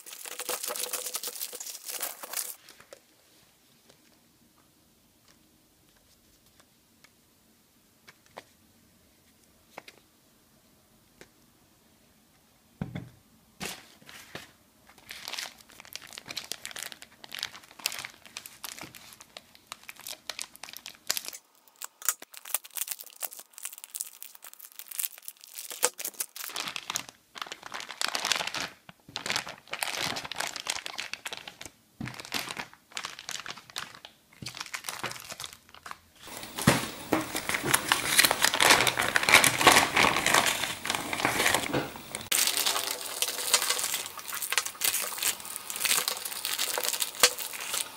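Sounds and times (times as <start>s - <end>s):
plastic bag crinkling: 0.0s - 3.0s, 14.9s - 47.9s.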